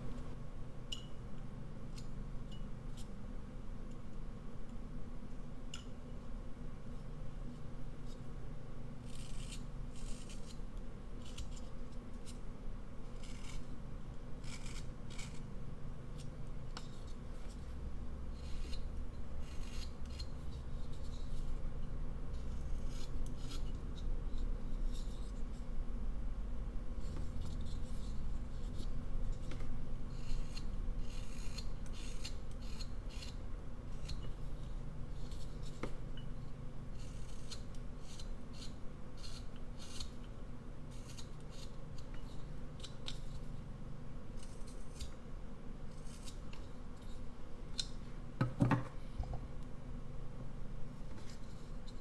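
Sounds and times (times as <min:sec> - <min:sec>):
low steady hum: 0:00.0 - 0:52.0
knife scraping wood: 0:09.0 - 0:12.4, 0:13.0 - 0:13.7, 0:14.4 - 0:15.5, 0:16.1 - 0:21.6, 0:22.3 - 0:25.6, 0:27.0 - 0:36.0, 0:37.0 - 0:40.2, 0:40.9 - 0:43.6, 0:44.4 - 0:45.2, 0:45.9 - 0:47.9.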